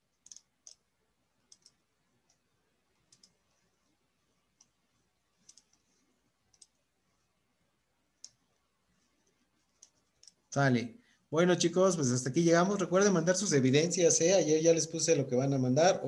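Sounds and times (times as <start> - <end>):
computer mouse clicks: 0.1 - 3.6, 4.4 - 4.8, 5.4 - 6.9, 8.2 - 8.6, 9.2 - 10.5.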